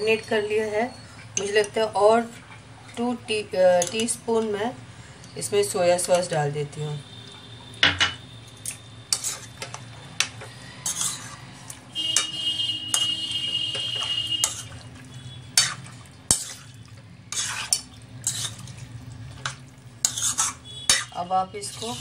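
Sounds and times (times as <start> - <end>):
meat mixed in wet marinade: 8.6 - 22.0.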